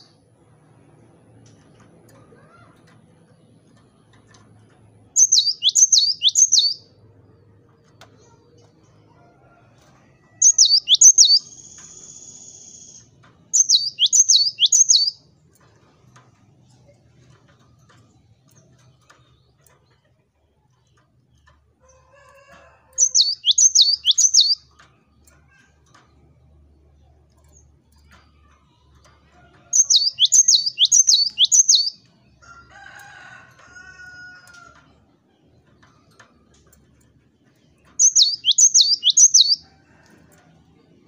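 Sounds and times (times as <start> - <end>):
bird song with whistled notes: 5.2 - 6.9, 10.4 - 15.2, 23.0 - 24.7, 29.7 - 32.1, 38.0 - 39.7.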